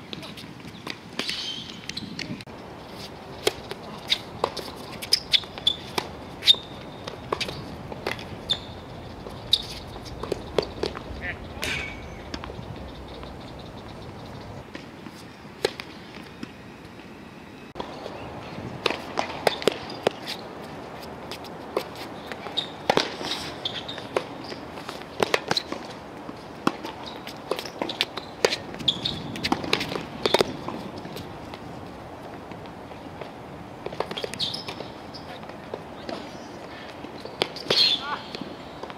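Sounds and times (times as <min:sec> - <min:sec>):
players' footsteps: 0:00.1 - 0:17.1, 0:18.8 - 0:38.9
tennis ball hits and bounces: 0:03.4 - 0:08.6, 0:09.2 - 0:12.6, 0:18.8 - 0:20.4, 0:21.3 - 0:31.6.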